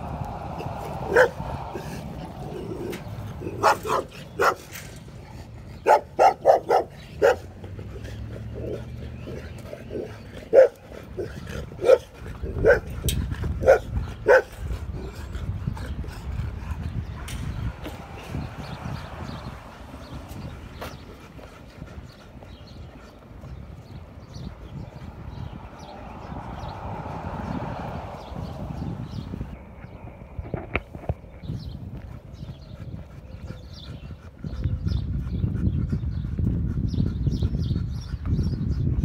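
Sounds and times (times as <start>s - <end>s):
dog barking: 1.1s - 1.4s, 3.4s - 4.6s, 5.8s - 7.5s, 10.5s - 10.8s, 11.8s - 12.9s, 13.6s - 14.5s.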